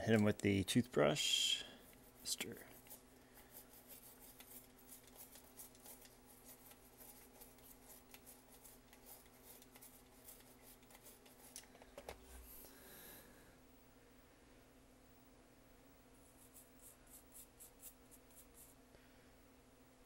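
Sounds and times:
toothbrush scrubbing: 1.2s - 11.6s.

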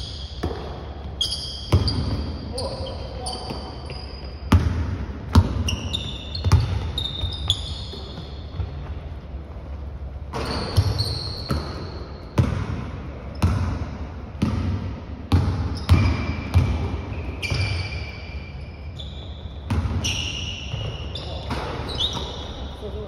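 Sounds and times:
sneakers squeaking: 0.0s - 23.0s
basketball bouncing on wooden floor: 1.7s - 2.2s, 4.5s - 9.0s, 10.3s - 11.8s, 12.4s - 17.8s.

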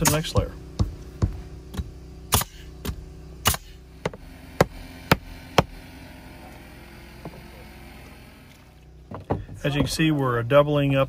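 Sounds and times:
low machine hum: 0.0s - 11.0s
nail gun firing into wood: 2.3s - 2.6s, 3.4s - 5.8s.

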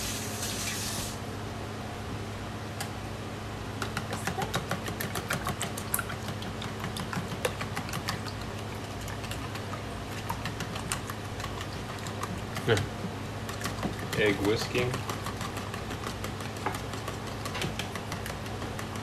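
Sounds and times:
whisk clicking against bowl: 3.8s - 19.0s.

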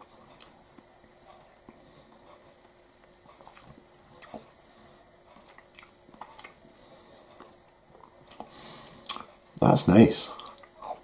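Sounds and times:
person chewing: 0.0s - 4.6s, 5.2s - 9.4s, 10.3s - 11.0s
lip and tongue clicks: 3.4s - 4.4s, 5.4s - 6.6s, 10.4s - 10.8s.

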